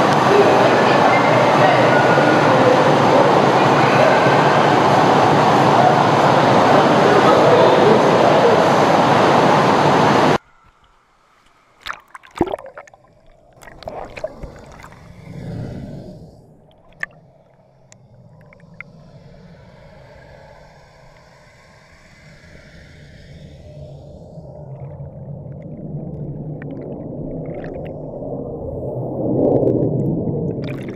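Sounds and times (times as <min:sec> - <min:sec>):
rush of churning water: 0:00.0 - 0:21.4, 0:30.5 - 0:30.9
muffled underwater gurgling: 0:11.8 - 0:30.9
steady hissing hum: 0:12.4 - 0:30.9.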